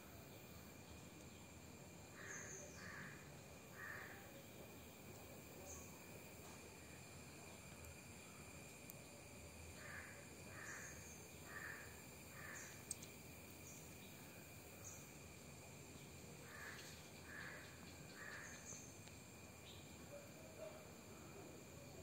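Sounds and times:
insect drone: 0:00.0 - 0:22.0
crow cawing: 0:02.2 - 0:04.2, 0:09.8 - 0:12.7, 0:16.4 - 0:18.6.

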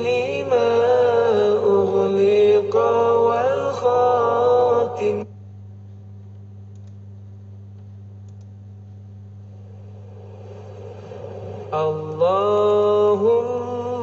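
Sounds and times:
person chanting: 0:00.0 - 0:05.3, 0:09.6 - 0:14.0
low hum: 0:00.0 - 0:14.0
faint hiss: 0:09.4 - 0:13.7.

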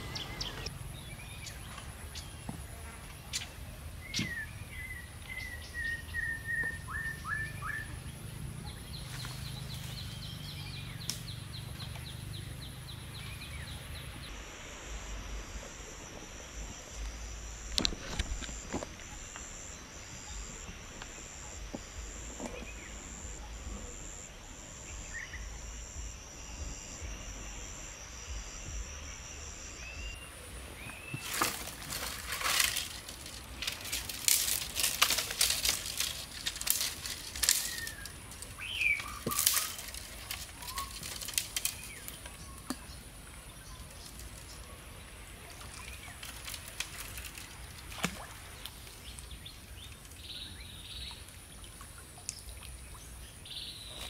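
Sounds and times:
bird chirps: 0:00.0 - 0:01.6, 0:37.4 - 0:43.0
insects trilling: 0:00.0 - 0:54.0
rustling and crackling branches: 0:07.5 - 0:24.3, 0:30.2 - 0:50.4.

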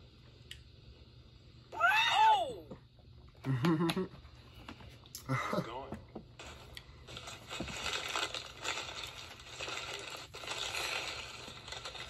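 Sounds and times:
food wrapper crinkling: 0:06.4 - 0:12.0.

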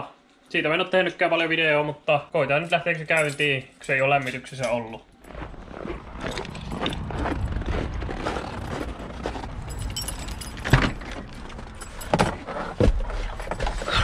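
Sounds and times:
keys jangling: 0:03.1 - 0:03.5, 0:09.6 - 0:12.4
person climbing into seat: 0:08.5 - 0:14.0.

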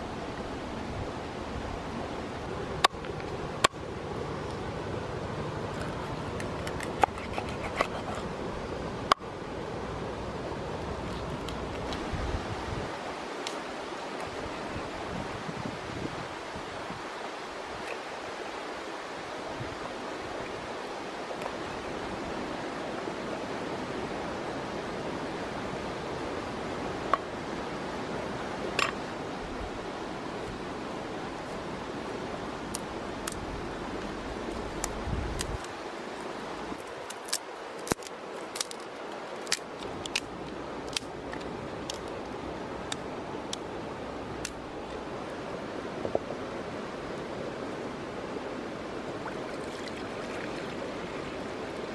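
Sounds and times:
twig fire crackling: 0:32.6 - 0:43.6.

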